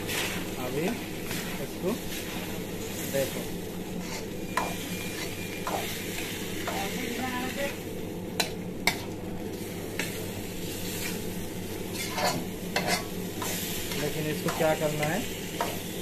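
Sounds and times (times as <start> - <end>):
pasta sizzling in a wok: 0.0 - 16.0
steady low hum: 0.0 - 16.0.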